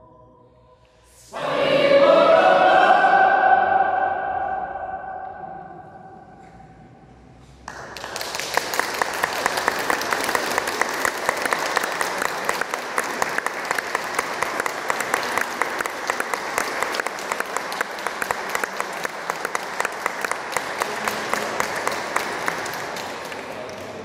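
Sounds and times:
choir singing chord: 0.0 - 6.6
audience applause: 7.7 - 24.0.

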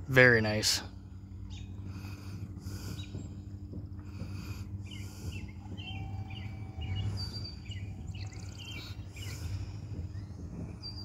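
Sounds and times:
steady low hum: 0.0 - 11.0
small birds chirping: 0.1 - 11.0
buzzy bird trill: 4.8 - 11.0.

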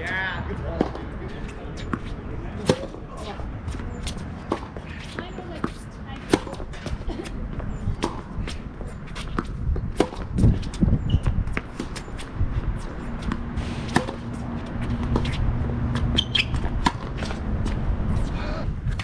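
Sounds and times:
racket striking tennis ball: 1.8 - 3.3, 4.1 - 7.4, 8.0 - 10.8, 11.4 - 17.8.

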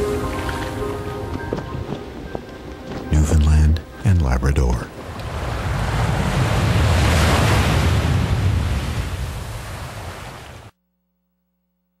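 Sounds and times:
ocean surf breaking on rocks: 5.0 - 10.7.

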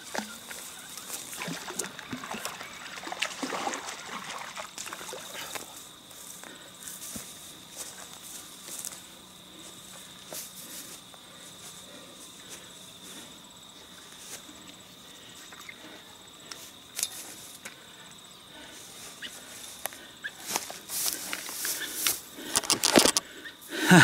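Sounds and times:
insect trilling: 0.0 - 24.0
faint clicks and rustles: 19.7 - 23.3.

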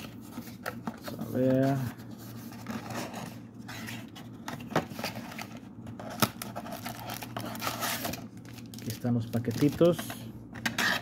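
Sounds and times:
cardboard scraping and rustling: 0.0 - 8.2.

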